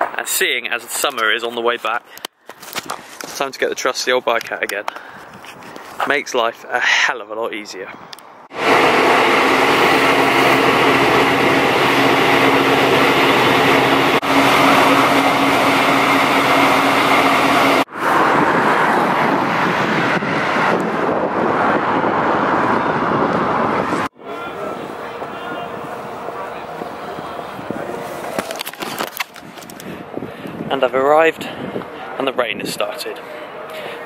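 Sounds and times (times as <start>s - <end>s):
vehicle travel noise: 8.1s - 34.0s.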